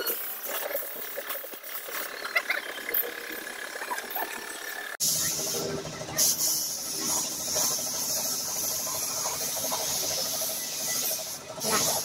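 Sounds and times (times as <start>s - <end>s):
spray gun hissing: 6.2s - 12.0s.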